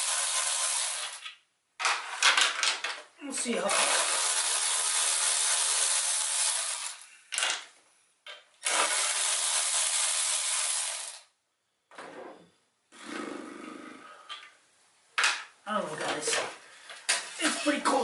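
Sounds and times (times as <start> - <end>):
electric ratchet motor whirring: 0.0 - 1.2, 3.7 - 7.0, 8.6 - 11.3.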